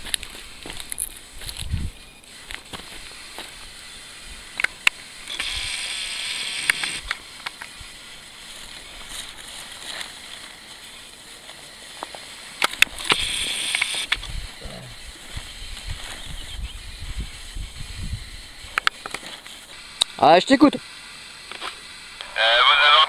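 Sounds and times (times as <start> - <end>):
paper map rustling: 8.4 - 12.3, 19.1 - 19.8.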